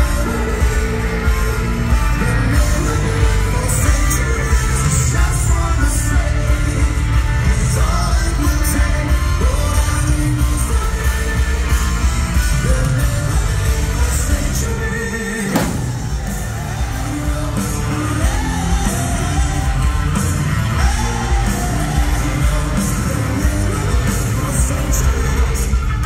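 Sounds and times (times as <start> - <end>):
rock band playing with vocals: 0.0 - 26.0
audience yelling along: 15.4 - 26.0.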